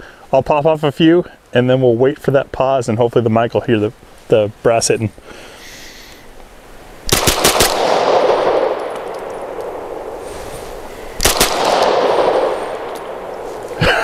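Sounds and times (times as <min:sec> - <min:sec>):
pistol gunshots: 0:07.1 - 0:13.8
rolling gunshot echo: 0:07.1 - 0:13.8.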